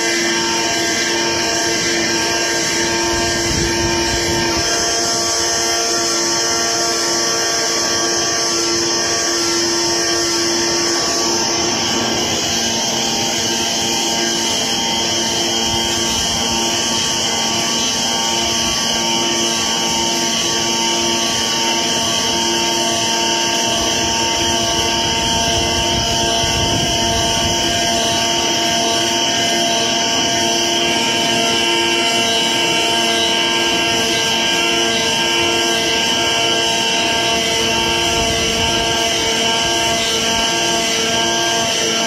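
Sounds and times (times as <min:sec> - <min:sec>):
cutter plotter machine hum: 0:00.0 - 0:42.0.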